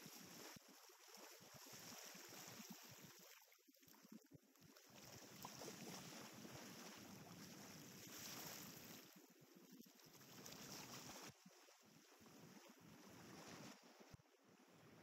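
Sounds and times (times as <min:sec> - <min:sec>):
small waves: 0:00.0 - 0:15.0.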